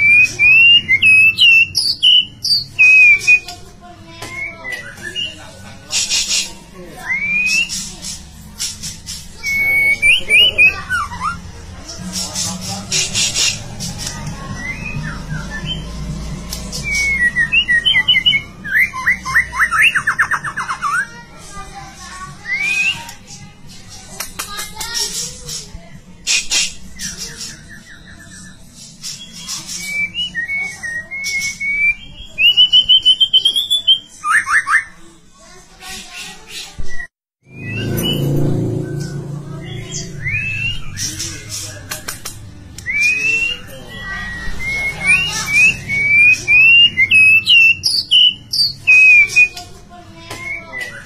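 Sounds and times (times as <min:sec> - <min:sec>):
bird singing whistled notes: 0:00.0 - 0:03.5, 0:09.4 - 0:11.4, 0:16.8 - 0:21.0, 0:26.9 - 0:35.0, 0:36.8 - 0:41.4, 0:42.8 - 0:49.6
songbird singing varied song: 0:42.8 - 0:49.6.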